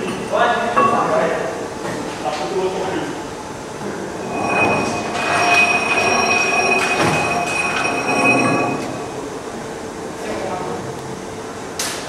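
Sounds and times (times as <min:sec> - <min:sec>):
machinery high-pitched squealing whine: 0:02.9 - 0:09.8.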